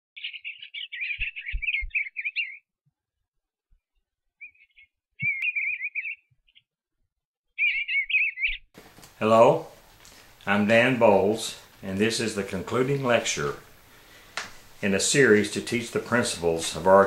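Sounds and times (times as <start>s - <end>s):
small bird twittering: 0.2s - 2.6s, 4.4s - 6.7s, 7.5s - 8.7s.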